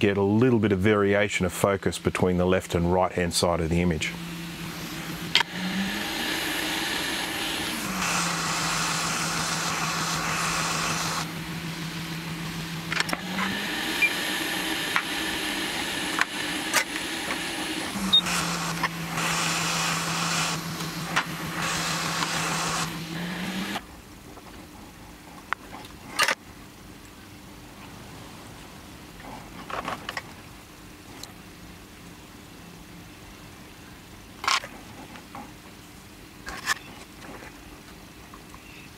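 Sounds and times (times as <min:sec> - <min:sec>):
hot air blower fan humming: 0:00.7 - 0:24.2.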